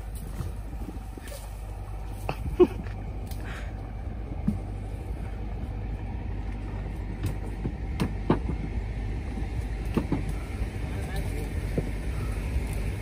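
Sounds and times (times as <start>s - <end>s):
leafy branches snapping and rustling: 0.0s - 3.8s
steady low rumble: 0.0s - 13.0s.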